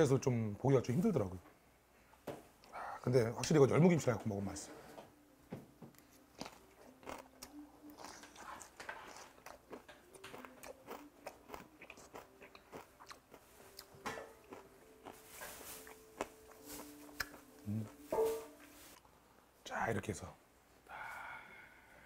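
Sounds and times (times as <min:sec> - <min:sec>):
close chewing with crunches: 0:06.0 - 0:18.0.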